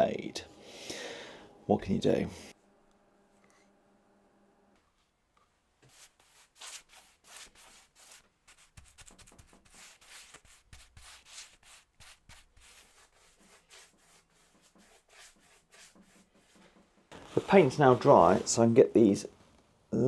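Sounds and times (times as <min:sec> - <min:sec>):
paintbrush strokes on wood: 0:05.8 - 0:18.8.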